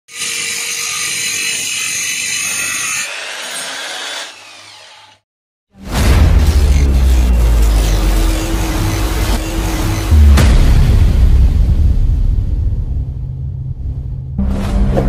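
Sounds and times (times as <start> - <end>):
electric drill sanding wood: 0.1 - 5.2
hole saw boring into wood: 0.1 - 5.2
loud intro music: 5.7 - 15.0.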